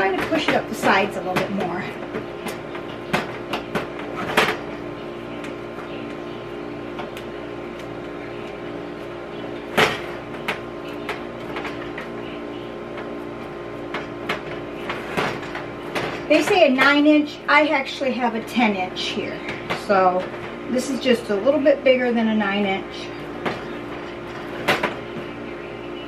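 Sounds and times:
steady hum: 0:00.0 - 0:26.0.

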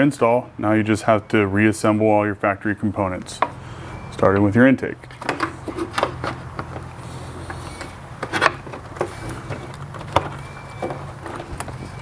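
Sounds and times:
parts clicking and knocking: 0:03.2 - 0:03.6, 0:04.2 - 0:12.0.

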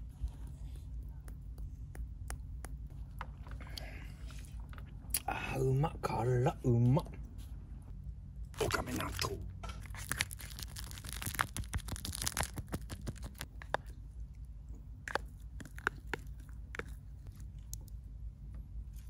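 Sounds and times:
plastic packaging crinkling and tearing: 0:09.8 - 0:13.5.

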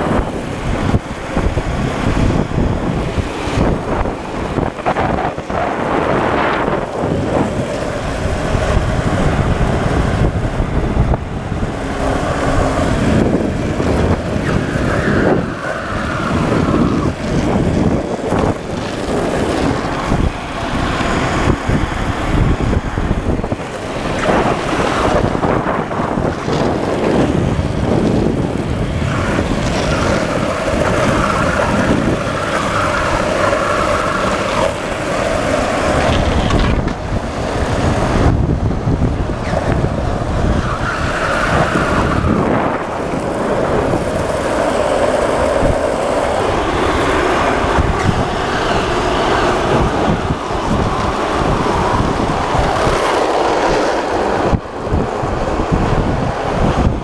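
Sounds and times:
longboard wheels rolling on asphalt: 0:00.0 - 0:57.0
wind rushing over microphone: 0:00.0 - 0:57.0.

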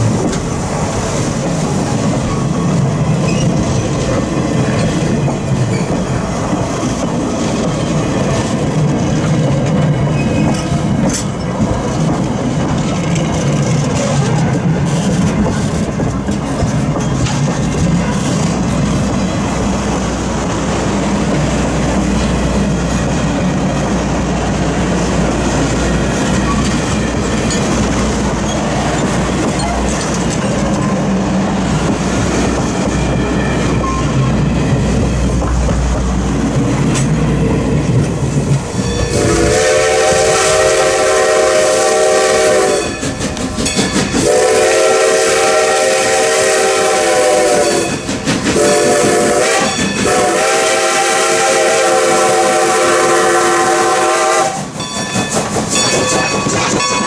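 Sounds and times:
train wheels clattering on track: 0:00.0 - 0:57.0
steam locomotive whistle: 0:38.9 - 0:43.1, 0:44.2 - 0:54.8.

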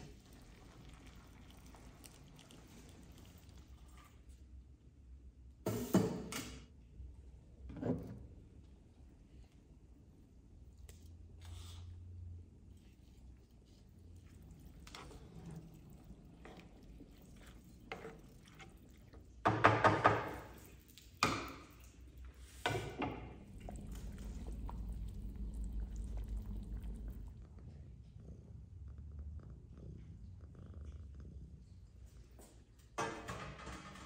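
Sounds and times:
pot of broth bubbling: 0:00.0 - 0:04.3, 0:13.0 - 0:27.5
spatula stirring in frying pan: 0:14.0 - 0:25.2.

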